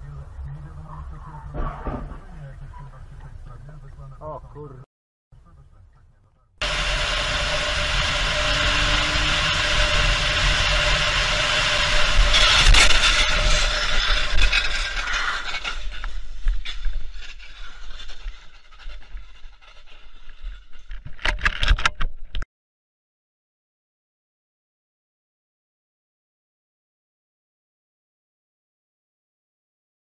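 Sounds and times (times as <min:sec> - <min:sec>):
sharp knocks: 0:01.5 - 0:02.3
car crash impacts and scraping: 0:01.5 - 0:02.4
car road and engine noise: 0:05.4 - 0:13.8
debris clattering: 0:11.8 - 0:19.9.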